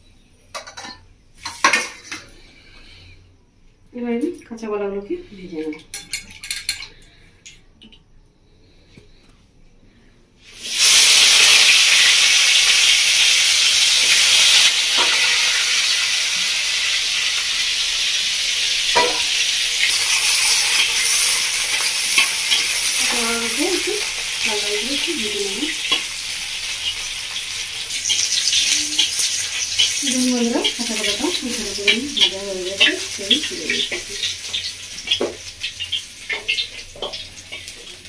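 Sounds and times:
food frying in hot oil: 10.4 - 38.0.

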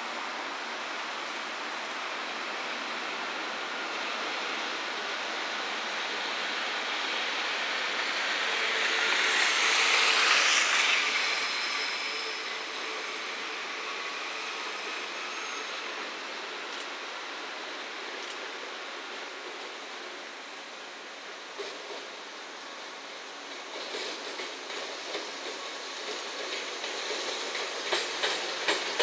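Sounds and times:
train wheels on rails: 0.0 - 29.0
faint high wheel squeal: 8.4 - 16.7.

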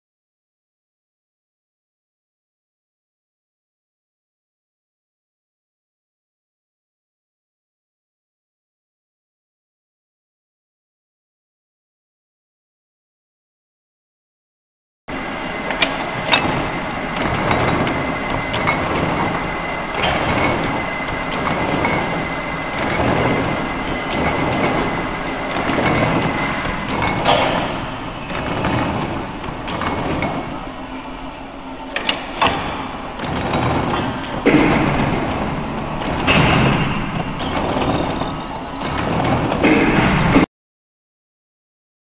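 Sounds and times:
machine clattering: 15.1 - 40.5
sharp metal knocks: 15.7 - 30.7, 32.0 - 40.5.

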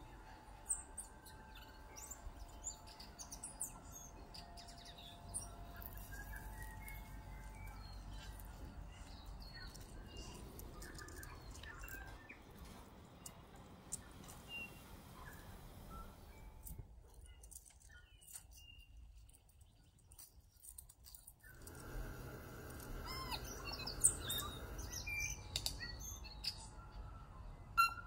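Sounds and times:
songbirds chirping and whistling: 0.0 - 28.0.

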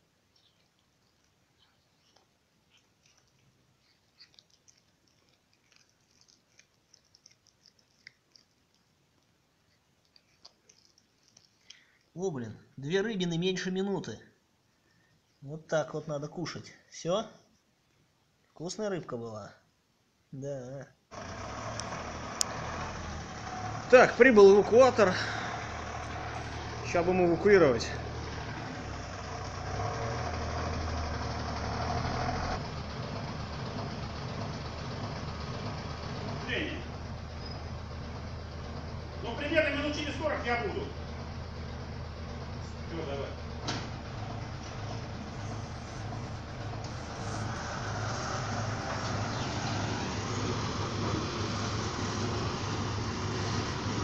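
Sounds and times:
truck engine running: 21.1 - 54.0.

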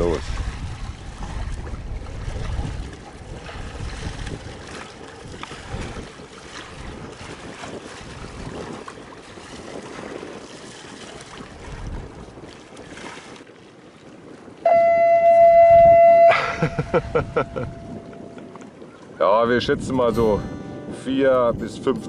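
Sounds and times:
water noise: 0.0 - 22.0
wind: 0.0 - 22.0
loud horn blast: 14.7 - 18.3
music: 19.8 - 22.0.

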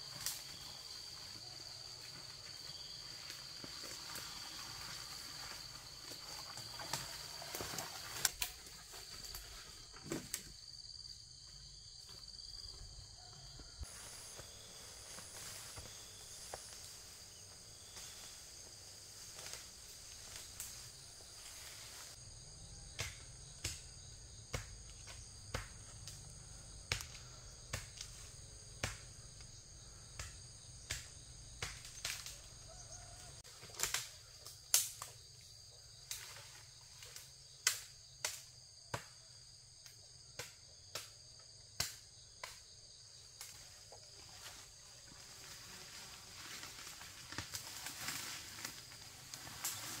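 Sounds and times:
high-pitched insect chorus: 0.0 - 50.0
twigs snapping underfoot: 30.2 - 32.4, 33.7 - 34.1, 34.7 - 35.1.

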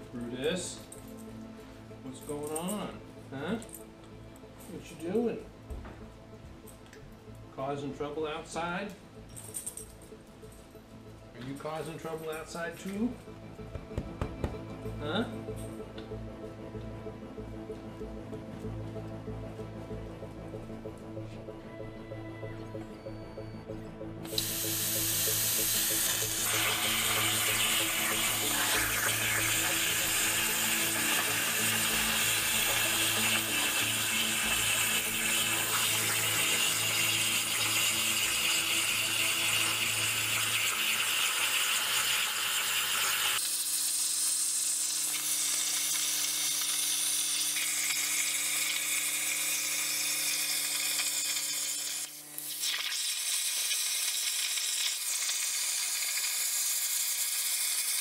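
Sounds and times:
plasma cutter hiss: 24.3 - 58.0.

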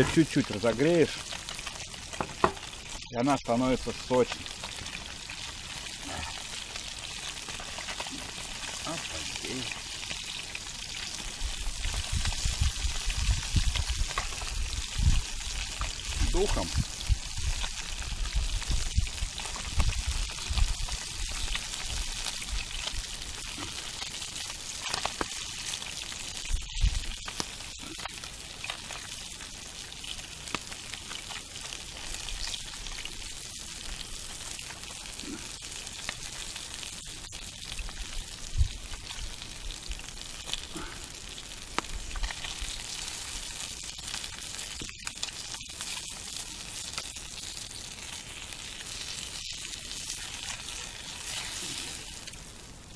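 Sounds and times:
fish frying in bubbling oil: 0.0 - 52.9
small clicks and pops: 24.8 - 25.4, 41.6 - 43.1.

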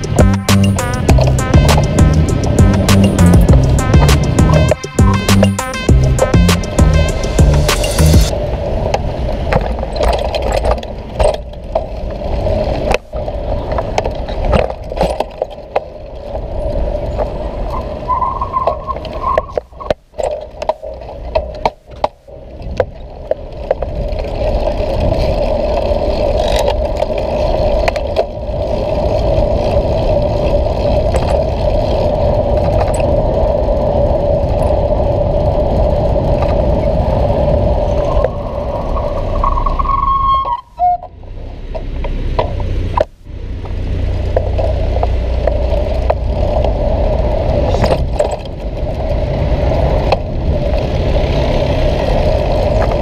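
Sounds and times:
bicycle rattling over pavement: 0.0 - 7.6, 8.3 - 53.0
steady hum: 0.0 - 8.7
traffic rumble: 0.0 - 53.0
wind on microphone: 21.9 - 41.1, 44.4 - 53.0.

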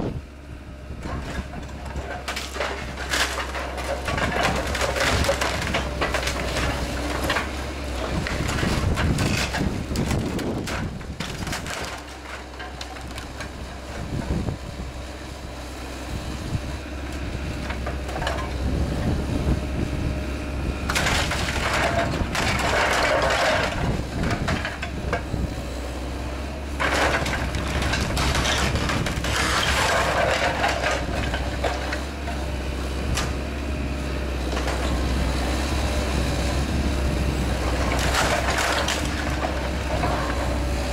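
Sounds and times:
excavator diesel engine running: 0.0 - 40.9
timber cracking and crunching: 1.0 - 14.9, 20.7 - 40.9.

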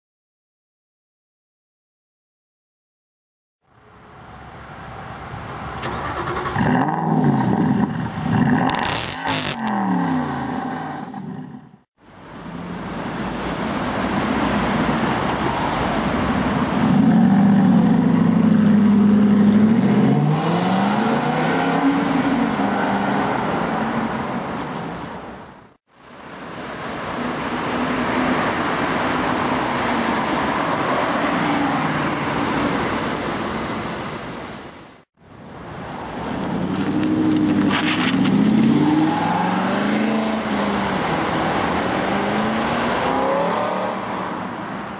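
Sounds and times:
loud car exhaust revving: 18.7 - 22.7.

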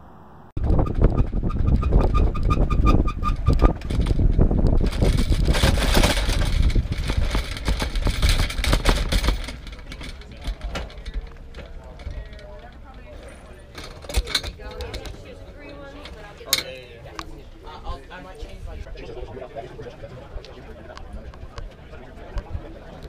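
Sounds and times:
wind buffeting microphone: 0.5 - 9.4
bicycle basket rattling: 0.8 - 16.8
faint voices: 6.4 - 23.0.

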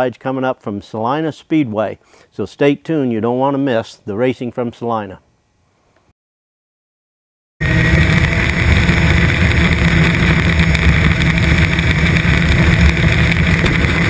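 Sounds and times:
race car engine running: 7.6 - 14.0.

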